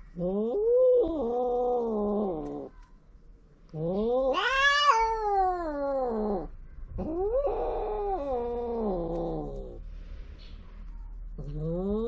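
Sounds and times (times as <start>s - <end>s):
cat yowling: 0.3s - 2.7s, 3.8s - 9.8s.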